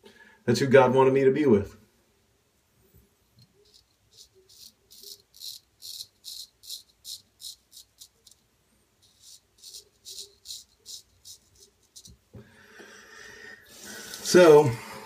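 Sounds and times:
razor scraping stubble: 3.6s - 8.4s, 9.0s - 12.2s.

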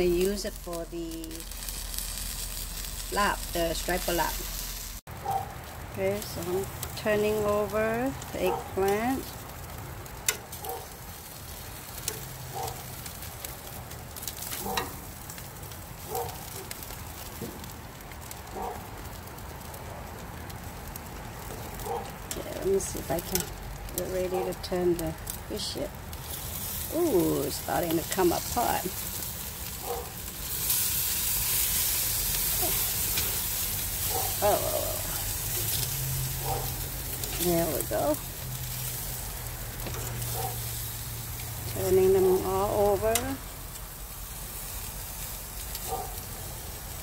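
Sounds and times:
fish sizzling on a grill: 0.0s - 47.0s.

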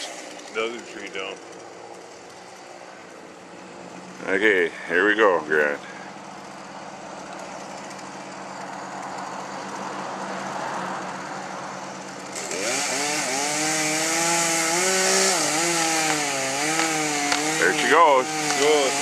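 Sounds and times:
chainsaw cutting wood: 0.0s - 3.2s, 6.1s - 10.0s, 11.9s - 19.0s.

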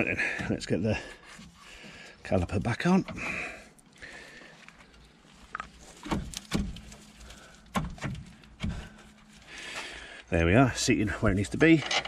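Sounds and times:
metallic clicks and knocks: 11.6s - 12.0s.

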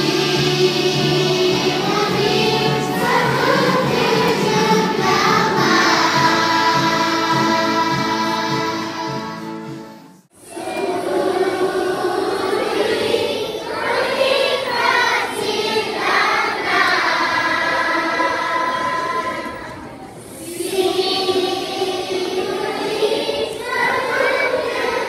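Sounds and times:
song with singing over a beat: 0.0s - 10.0s
children and adults singing together: 0.0s - 25.0s.

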